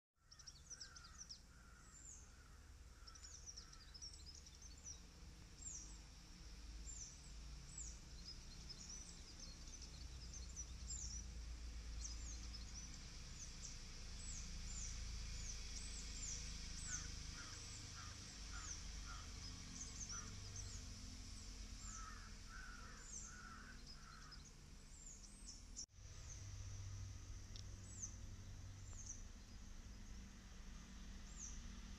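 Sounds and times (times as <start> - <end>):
lower bird call: 0.2 - 6.0, 6.8 - 26.5.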